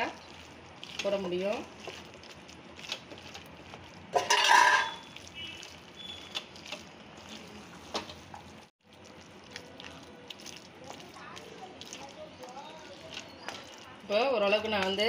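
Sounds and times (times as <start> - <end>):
wet squelching: 0.0 - 15.0
spatula scraping a pan: 0.9 - 8.3.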